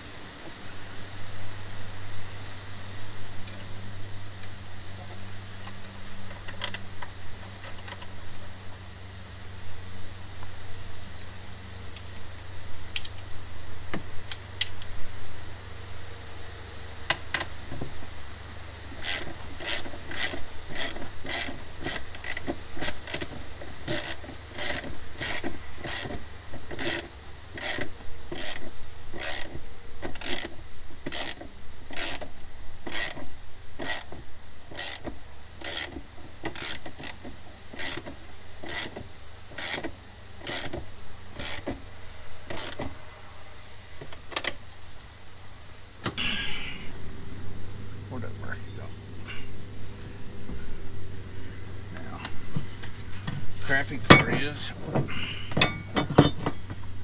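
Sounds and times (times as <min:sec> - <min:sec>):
hand ratchet clicking: 0:19.0 - 0:23.3, 0:23.9 - 0:33.2, 0:33.8 - 0:37.2, 0:37.8 - 0:39.0, 0:39.6 - 0:40.8, 0:41.4 - 0:41.7.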